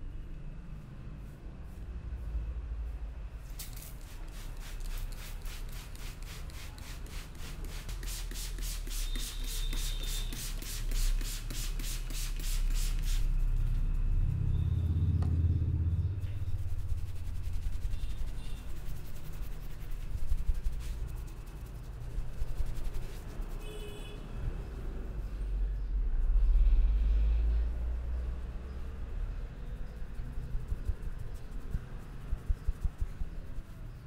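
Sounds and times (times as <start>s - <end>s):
spray bottle hissing sprays: 3.5s - 13.4s
hands rubbing damp hair: 3.6s - 13.2s, 16.5s - 23.6s.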